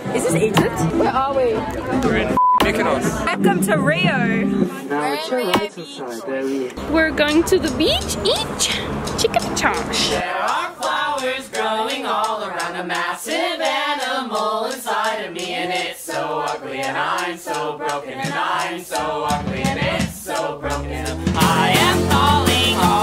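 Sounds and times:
voices singing together: 0:07.9 - 0:23.0.

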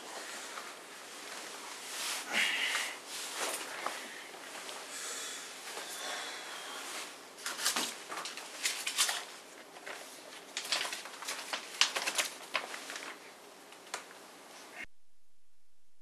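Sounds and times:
magazine pages rustling: 0:06.9 - 0:14.2.

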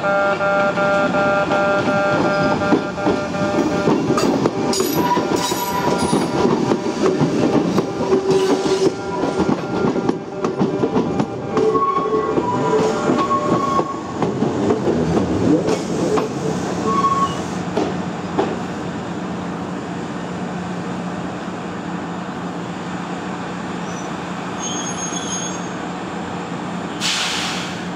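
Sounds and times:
electric train humming: 0:00.0 - 0:24.6
wheels clicking over rail joints: 0:01.8 - 0:16.9
train wheels squealing: 0:04.2 - 0:06.4, 0:11.6 - 0:14.1, 0:16.8 - 0:17.6, 0:23.8 - 0:25.8.

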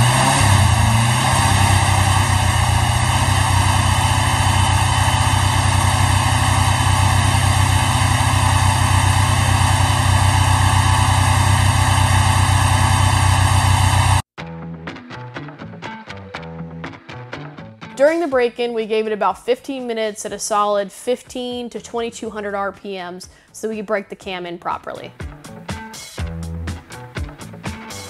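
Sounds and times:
engine running on stand: 0:00.0 - 0:14.2.

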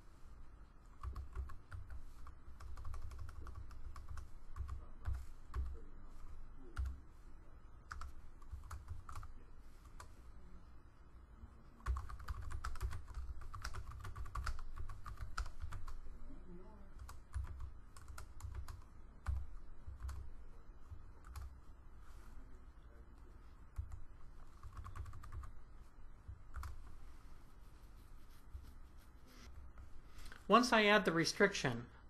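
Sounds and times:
typing on computer keyboard: 0:00.9 - 0:05.8, 0:06.8 - 0:07.0, 0:07.9 - 0:09.3, 0:11.8 - 0:16.0, 0:17.0 - 0:20.3, 0:21.2 - 0:21.6, 0:23.8 - 0:25.5, 0:26.5 - 0:26.8.

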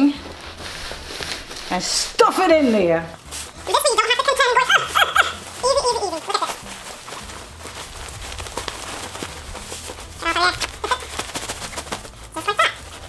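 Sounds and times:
fabric rustling: 0:00.0 - 0:13.0
woman laughing: 0:04.5 - 0:06.6.

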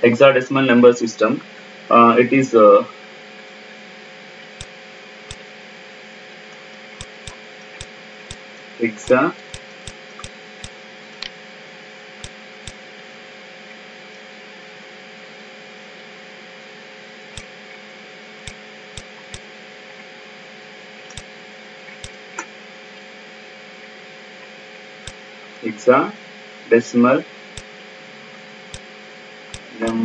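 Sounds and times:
background hiss and hum: 0:00.0 - 0:30.0
computer mouse clicking: 0:07.0 - 0:08.4, 0:09.0 - 0:11.4, 0:18.4 - 0:19.4, 0:29.5 - 0:30.0.

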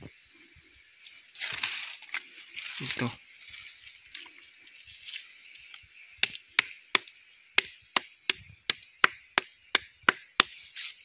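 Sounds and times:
sharp knocks on rock: 0:06.2 - 0:10.6.

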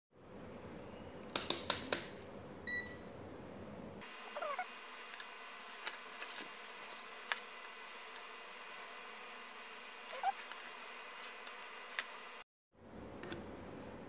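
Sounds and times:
multimeter beep: 0:02.7 - 0:03.1, 0:08.7 - 0:10.0
faint squeak: 0:09.6 - 0:10.4.

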